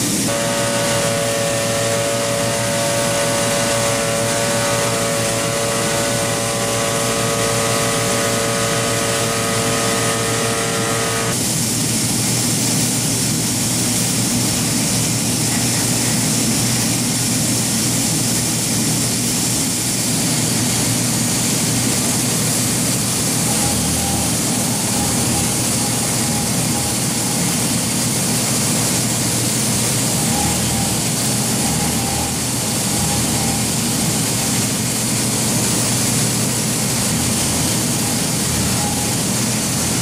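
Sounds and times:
rushing machine noise: 0:00.0 - 0:40.0
router spindle whine: 0:00.3 - 0:11.4, 0:23.4 - 0:27.7, 0:29.7 - 0:34.9, 0:37.0 - 0:40.0.

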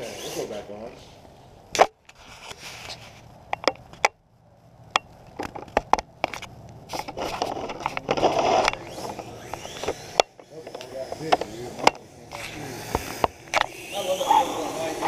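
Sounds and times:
sharp clicks and knocks: 0:03.5 - 0:04.2, 0:04.9 - 0:12.0
plastic scraping and rustling: 0:05.4 - 0:10.0.

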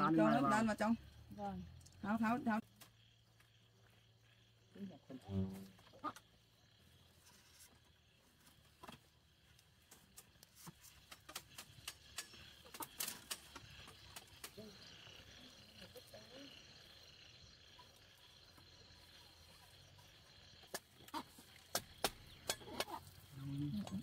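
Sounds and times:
bamboo strips clicking and snapping: 0:08.8 - 0:14.6, 0:20.6 - 0:24.0
chickens clucking: 0:11.2 - 0:14.9, 0:20.7 - 0:24.0.

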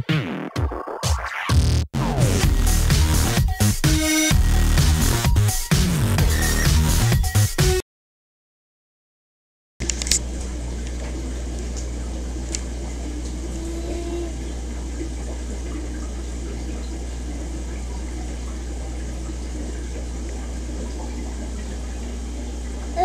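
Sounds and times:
aquarium filter hum: 0:09.8 - 0:23.0
water bubbling and churning: 0:10.9 - 0:23.0.

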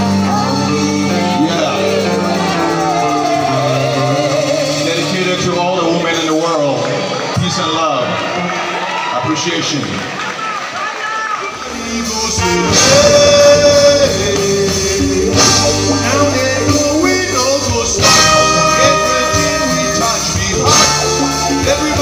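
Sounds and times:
man singing: 0:00.0 - 0:06.3, 0:11.5 - 0:22.0
live band playing: 0:00.0 - 0:07.6, 0:11.4 - 0:22.0.

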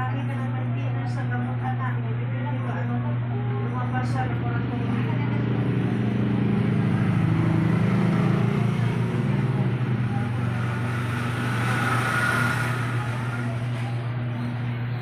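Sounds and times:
low electric hum: 0:00.0 - 0:15.0
indistinct voices: 0:03.0 - 0:15.0.

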